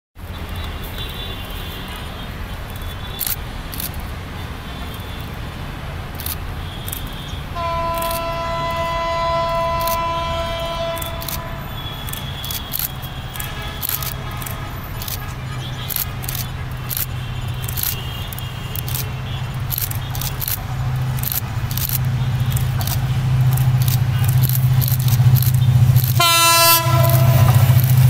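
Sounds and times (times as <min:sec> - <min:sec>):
locomotive air horn: 0:06.6 - 0:21.2, 0:22.0 - 0:28.0.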